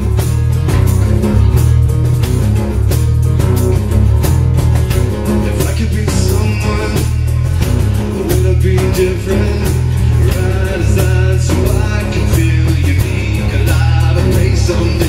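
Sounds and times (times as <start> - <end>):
drum kit beat: 0.0 - 15.0
strummed acoustic guitars: 0.0 - 15.0
man singing: 5.4 - 15.0.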